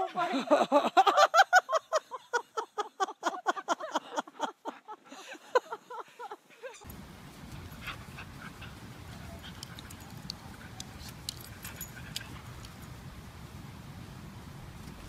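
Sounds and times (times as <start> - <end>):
low background hiss: 0.0 - 15.0
dogs yelping and whimpering: 7.8 - 12.7.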